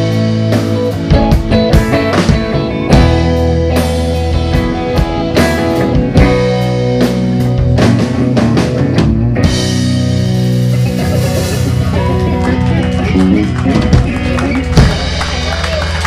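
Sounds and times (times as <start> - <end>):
drum kit with cymbal strikes: 0.0 - 12.1
electric guitar: 0.0 - 16.0.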